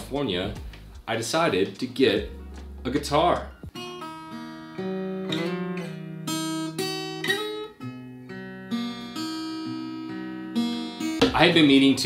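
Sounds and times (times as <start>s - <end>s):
fingerpicked acoustic guitar melody: 2.2s - 11.4s.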